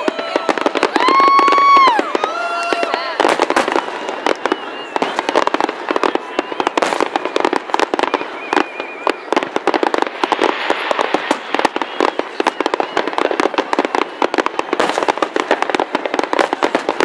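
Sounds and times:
fireworks bursting and crackling: 0:00.0 - 0:17.0.

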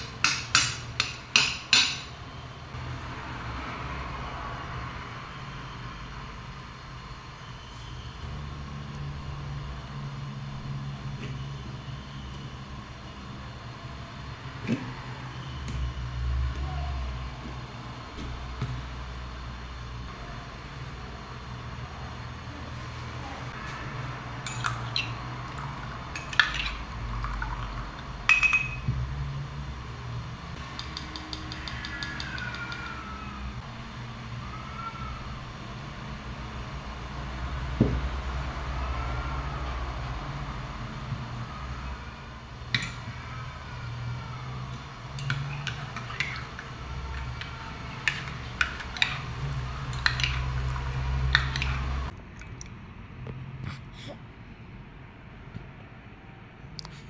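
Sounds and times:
metal spoon clinking on ceramic cup: 0:24.4 - 0:25.1, 0:28.3 - 0:28.9.

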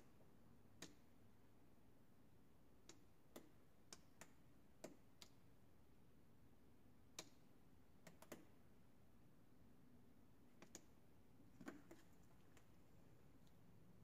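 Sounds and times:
faint sharp clicks and taps: 0:07.1 - 0:08.6, 0:10.5 - 0:13.6.

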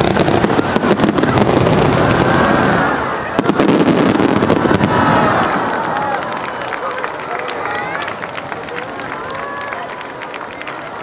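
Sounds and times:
fireworks bursting: 0:00.0 - 0:06.5.

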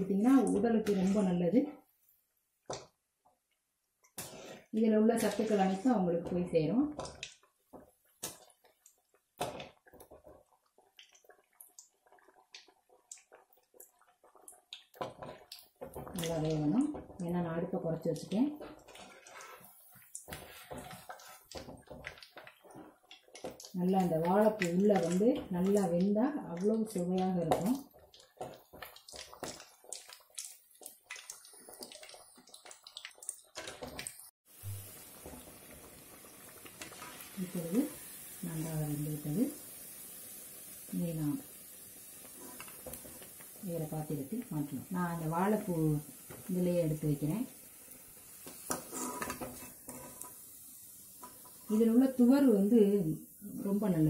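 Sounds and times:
food sizzling in hot oil: 0:04.2 - 0:54.0.

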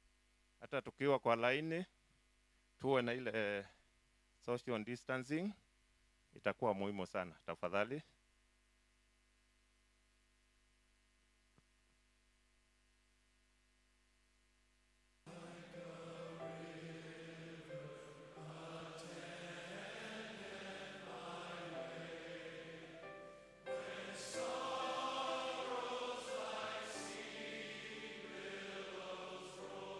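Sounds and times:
choir singing a slow chant: 0:15.3 - 0:29.9.

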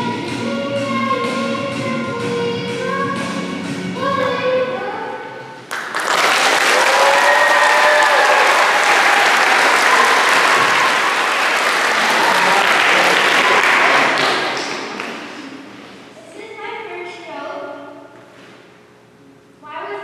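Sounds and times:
audience clapping and cheering: 0:05.7 - 0:15.6
voices calling out: 0:07.0 - 0:15.0.

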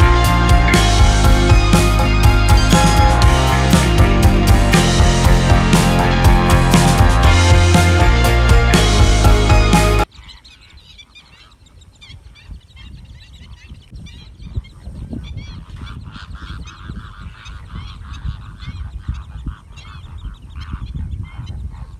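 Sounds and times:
flamingos honking: 0:00.0 - 0:10.1.

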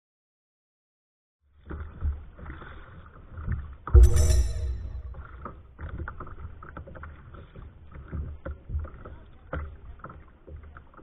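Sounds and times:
small waves slapping hull: 0:01.5 - 0:03.8, 0:06.1 - 0:11.0
ringing hit: 0:04.0 - 0:05.6.

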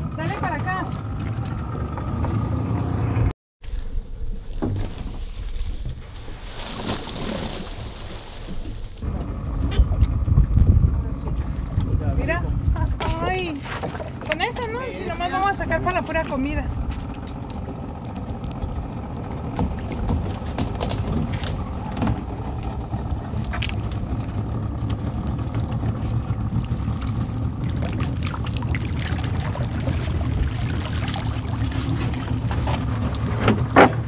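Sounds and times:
outboard motor idling: 0:00.0 - 0:03.3, 0:09.0 - 0:34.0
water splashing off a net: 0:04.7 - 0:09.0, 0:25.4 - 0:34.0.

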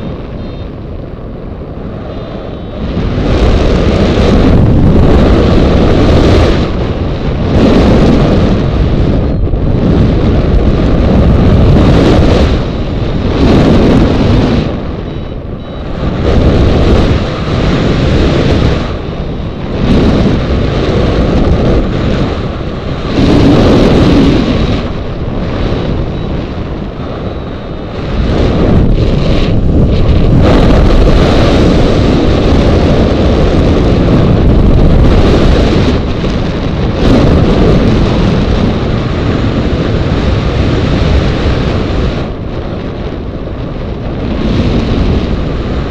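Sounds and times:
wind buffeting microphone: 0:00.0 - 0:45.9.

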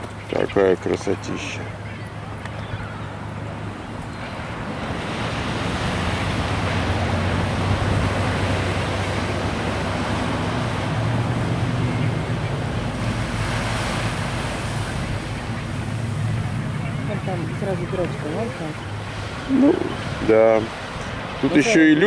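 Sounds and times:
ocean surf: 0:00.0 - 0:22.0
wind on microphone: 0:02.1 - 0:21.5.

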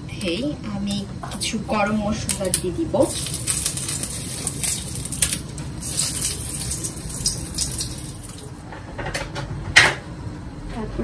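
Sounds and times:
spices sizzling and popping in oil: 0:02.3 - 0:08.6.

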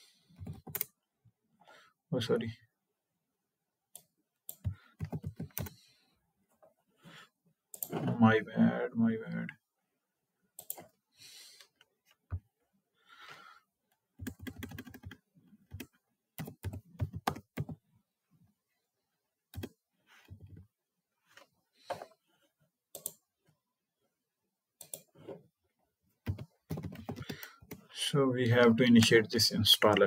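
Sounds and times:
computer keyboard typing: 0:00.4 - 0:00.9, 0:04.5 - 0:05.8, 0:14.2 - 0:17.8, 0:19.5 - 0:19.8, 0:26.2 - 0:27.8.

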